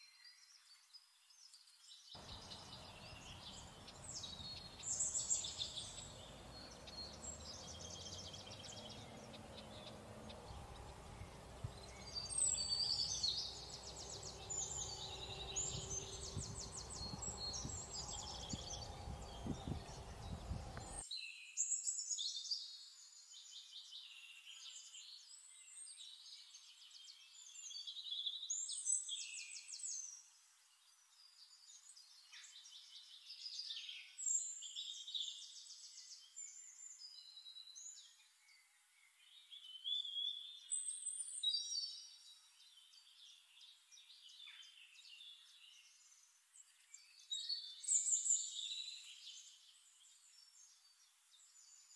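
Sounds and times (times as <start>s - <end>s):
small birds chirping: 0.0s - 51.9s
low background rumble: 2.2s - 21.0s.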